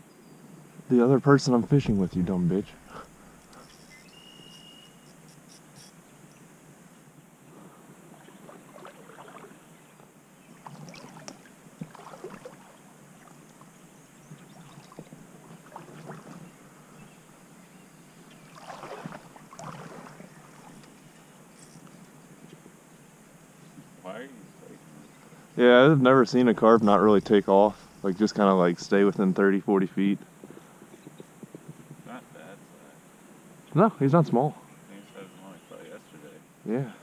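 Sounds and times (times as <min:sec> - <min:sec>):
river water splashing and lapping: 0:07.6 - 0:22.2.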